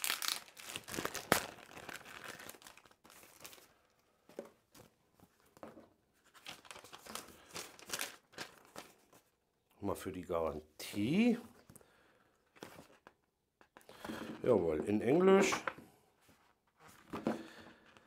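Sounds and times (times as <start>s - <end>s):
paper and packaging rustling: 0.0s - 5.5s, 6.2s - 9.3s.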